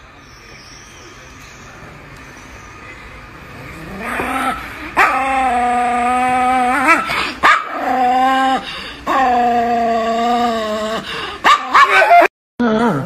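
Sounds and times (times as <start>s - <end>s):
dog howling: 3.9s - 13.0s
dog yelping: 4.1s - 8.3s, 11.4s - 12.3s.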